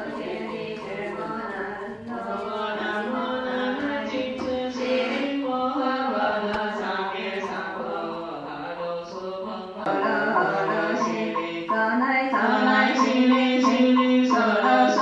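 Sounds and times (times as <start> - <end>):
slow chanted singing: 0.0 - 15.0.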